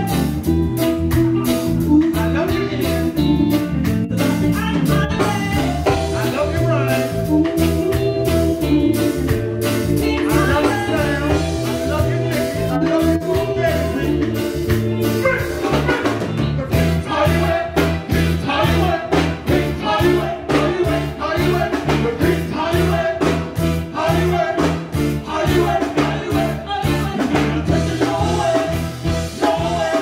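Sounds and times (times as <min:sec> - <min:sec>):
live reggae band playing: 0:00.0 - 0:30.0
repeating bass line: 0:00.0 - 0:30.0
lead singer singing: 0:01.4 - 0:30.0.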